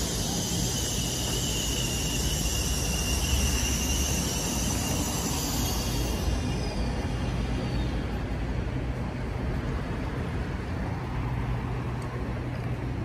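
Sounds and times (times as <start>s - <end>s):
high hiss: 0.0s - 7.7s
train rumbling: 0.0s - 13.0s.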